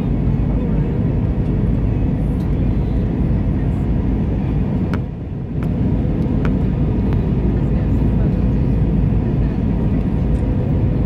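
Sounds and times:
airplane cabin engine rumble: 0:00.0 - 0:11.0.

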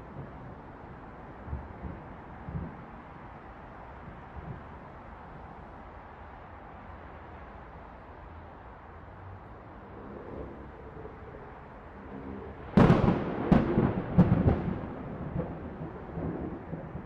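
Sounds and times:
rolling thunder: 0:00.0 - 0:03.2, 0:12.7 - 0:17.0
thunderclap: 0:00.0 - 0:03.2, 0:12.8 - 0:17.0
distant city traffic hum: 0:00.0 - 0:17.0.

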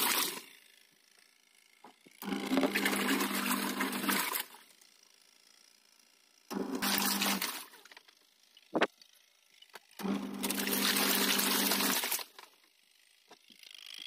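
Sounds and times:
water rushing into washing machine: 0:00.0 - 0:00.5, 0:02.2 - 0:04.6, 0:06.5 - 0:07.8, 0:10.0 - 0:12.4.

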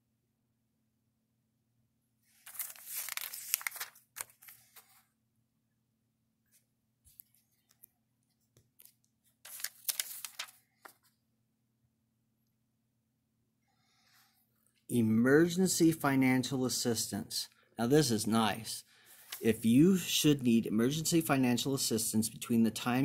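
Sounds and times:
paper pages rustling: 0:02.3 - 0:05.1, 0:06.5 - 0:11.2, 0:19.0 - 0:19.6.

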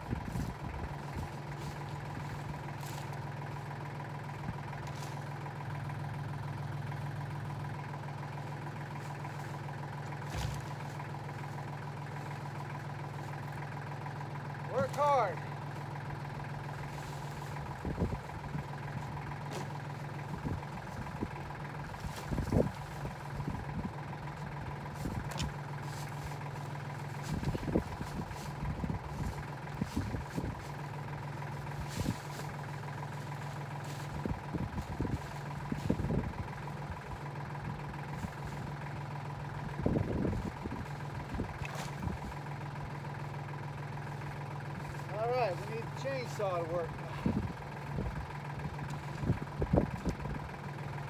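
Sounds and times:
tractor engine idling: 0:00.0 - 0:51.0
logs knocking and thumping: 0:10.0 - 0:11.0, 0:19.0 - 0:21.0.

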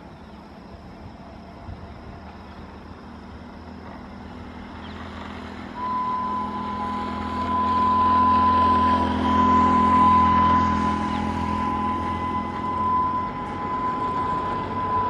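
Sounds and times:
train rumble: 0:00.0 - 0:15.0
locomotive horn: 0:05.7 - 0:15.0.

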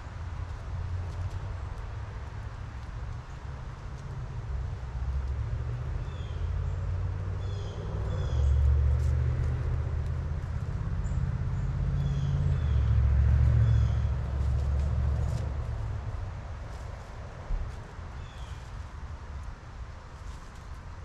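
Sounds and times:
road traffic rumble: 0:00.0 - 0:21.0
birds chirping: 0:10.6 - 0:14.6.

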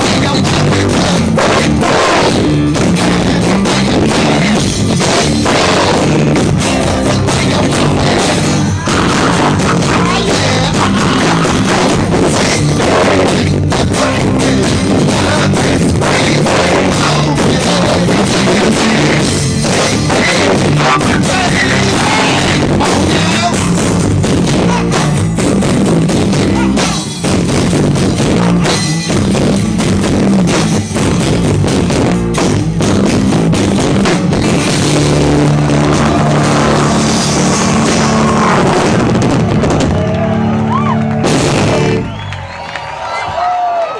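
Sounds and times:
person singing: 0:00.0 - 0:25.3
second guitar: 0:00.0 - 0:42.5
drums: 0:00.0 - 0:43.9.

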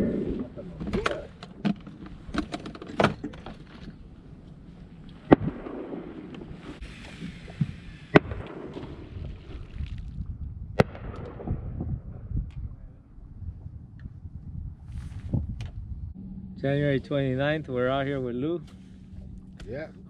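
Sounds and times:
wind: 0:00.0 - 0:20.0
water: 0:06.8 - 0:10.4.

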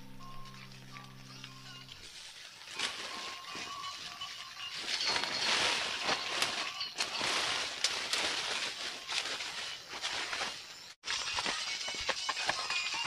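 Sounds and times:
leafy branches rustling: 0:01.8 - 0:11.5.

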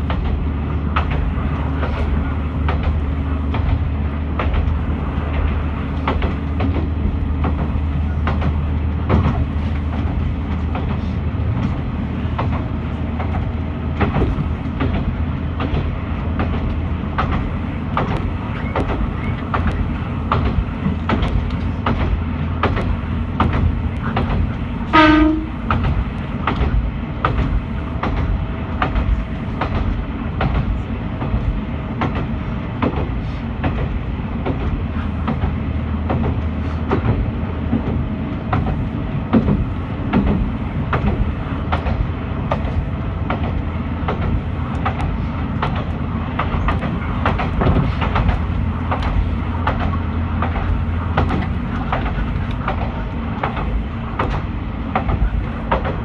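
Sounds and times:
diesel railcar engine drone: 0:00.0 - 0:56.0
wheels clicking over rail joints: 0:00.0 - 0:56.0
train horn blast: 0:24.8 - 0:25.7.

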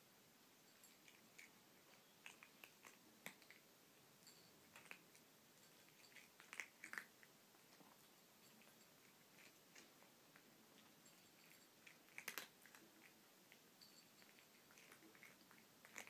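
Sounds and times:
cat chewing and lapping: 0:00.7 - 0:16.0.

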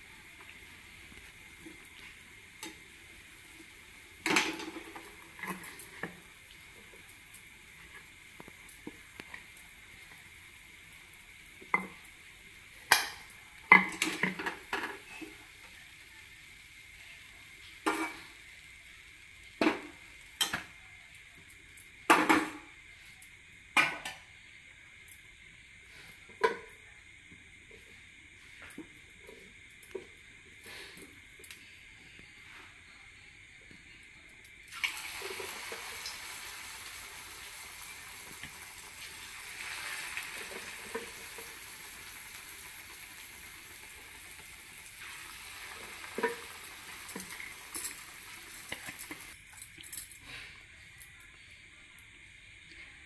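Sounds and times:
food sizzling in hot oil: 0:00.0 - 0:20.8, 0:34.7 - 0:49.4.

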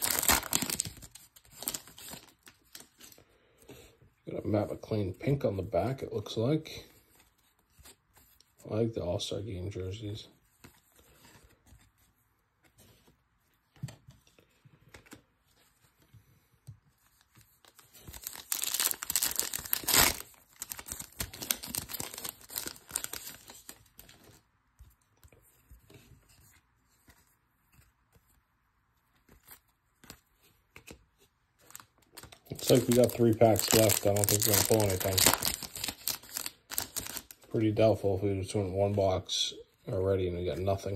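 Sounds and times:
wrapper tearing and crinkling: 0:00.0 - 0:03.0, 0:17.7 - 0:24.1, 0:31.7 - 0:37.5
trading cards rustling: 0:00.0 - 0:03.8, 0:09.9 - 0:28.4, 0:29.0 - 0:39.2.

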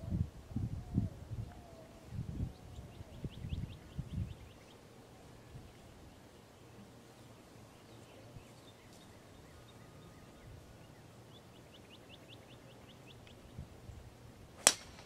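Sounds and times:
quiet outdoor ambience: 0:00.0 - 0:15.0
bird chirping: 0:01.4 - 0:04.9, 0:05.5 - 0:13.6
golf club striking ball: 0:14.6 - 0:15.0.

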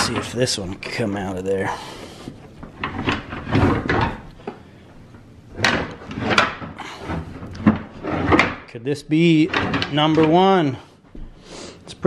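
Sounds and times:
antlers knocking and scraping: 0:00.0 - 0:04.6, 0:05.5 - 0:11.3.

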